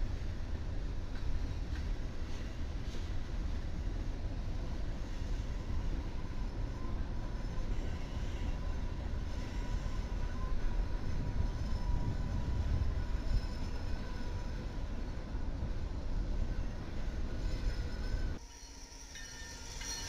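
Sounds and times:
train wheels rumbling on rail: 0.0s - 20.0s
thin wheel squeal: 5.2s - 15.2s, 16.4s - 20.0s.

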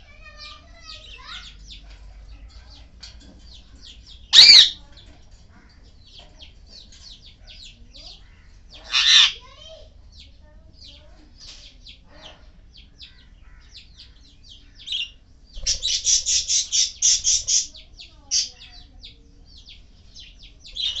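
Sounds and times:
parrots chirping and chattering: 0.0s - 21.0s
rapid shrill bird calls: 4.3s - 4.8s, 13.0s - 18.6s.

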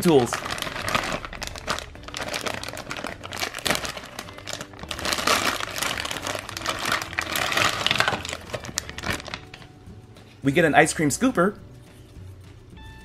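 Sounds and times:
plastic bags crinkling: 0.0s - 9.7s.

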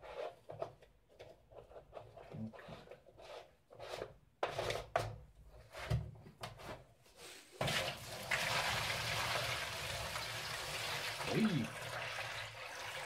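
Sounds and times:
water pouring into plastic tub: 7.6s - 13.0s.

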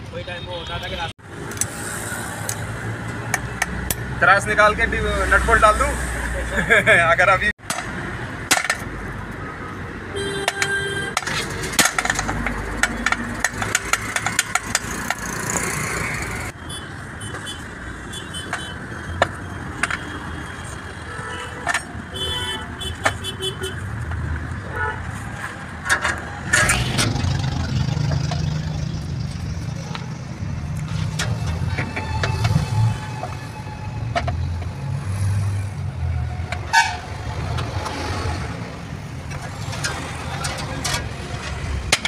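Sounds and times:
road traffic noise: 0.0s - 42.0s.

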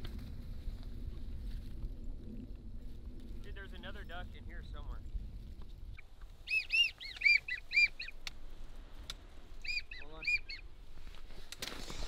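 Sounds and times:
wigeon whistling: 6.4s - 8.2s, 9.6s - 10.6s.

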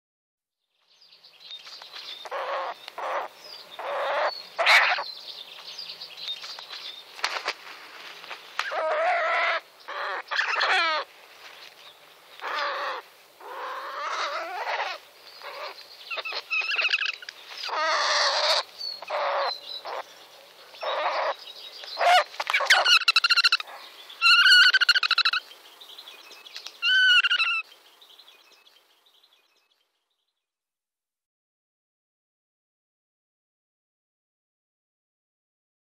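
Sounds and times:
owl distress calls: 2.2s - 5.1s, 8.6s - 11.1s, 12.4s - 20.1s, 20.8s - 21.4s, 22.0s - 25.4s, 26.8s - 27.7s.

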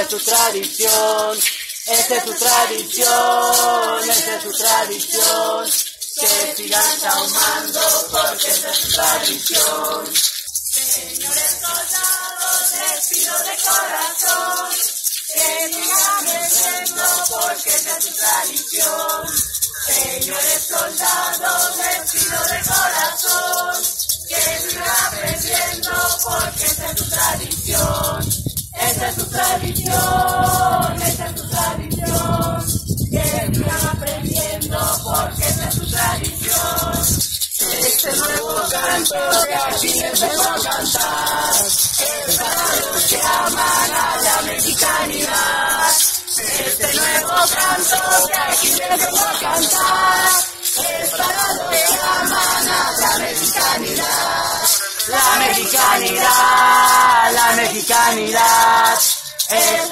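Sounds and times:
group of voices chanting: 0.0s - 10.2s, 37.6s - 59.9s
rattles shaking: 0.0s - 59.9s.

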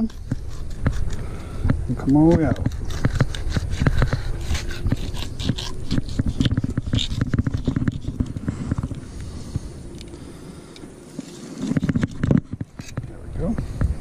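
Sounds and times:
knife cutting along fish backbone: 2.4s - 8.3s.

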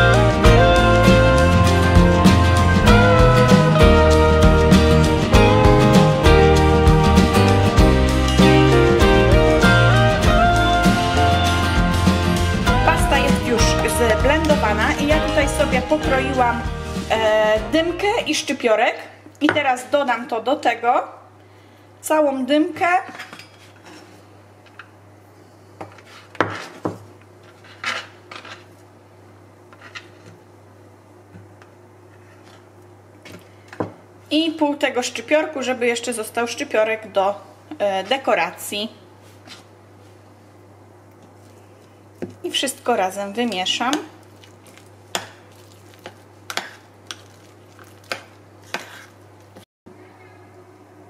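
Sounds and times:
metal utensil stirring thick spread: 43.5s - 49.2s.

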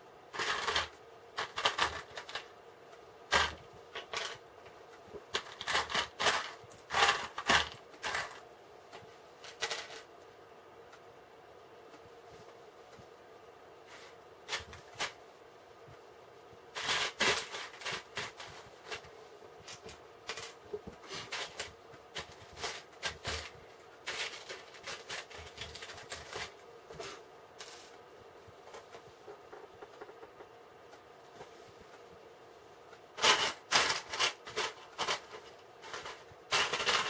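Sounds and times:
plastic bricks clicking and rattling: 33.2s - 37.0s.

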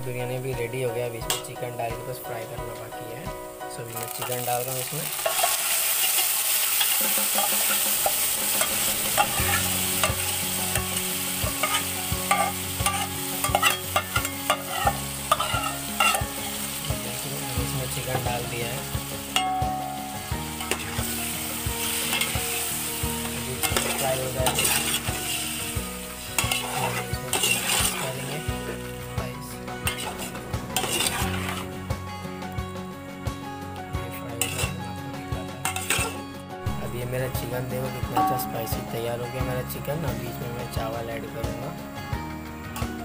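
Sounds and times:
food sizzling in a pot: 0.4s - 43.0s
metal spoon scraping a pot: 5.1s - 16.6s, 20.6s - 21.1s, 23.6s - 25.5s, 26.3s - 28.5s, 29.9s - 31.7s, 34.4s - 34.8s, 35.6s - 36.2s.

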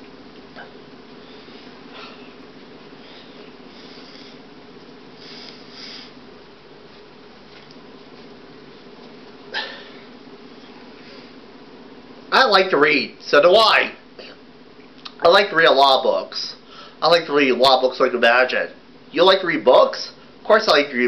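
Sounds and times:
low room hum: 0.0s - 21.0s
faint hissing rustles: 0.1s - 12.4s.

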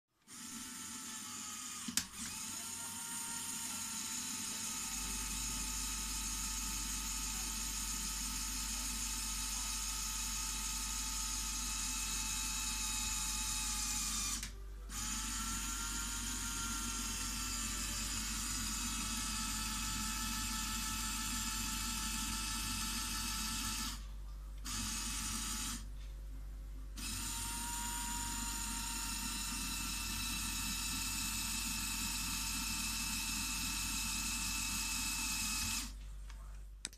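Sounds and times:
electric motor whine with gear chatter: 0.3s - 24.0s, 24.6s - 25.8s, 27.0s - 35.9s.

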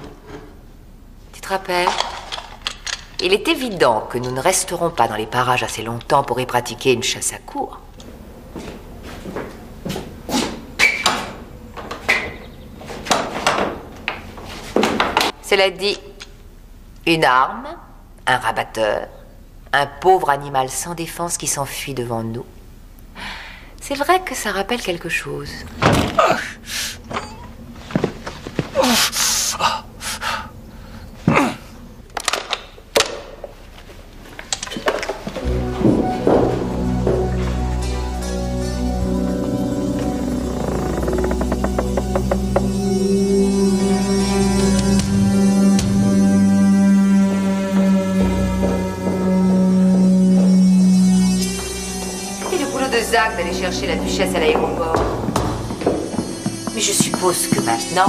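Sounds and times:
footsteps on a bare floor: 8.1s - 15.3s, 27.7s - 28.8s, 35.1s - 42.9s, 48.0s - 58.0s
short squeaks: 37.8s - 43.0s
knocks and rattles of wooden door: 39.4s - 43.0s
sharp knocks: 40.0s - 42.9s, 54.5s - 58.0s.

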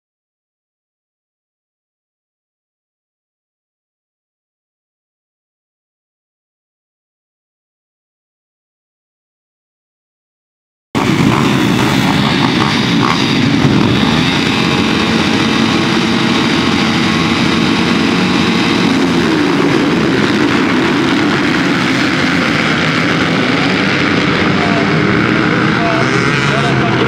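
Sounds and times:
motorbike engines revving: 11.0s - 27.0s.

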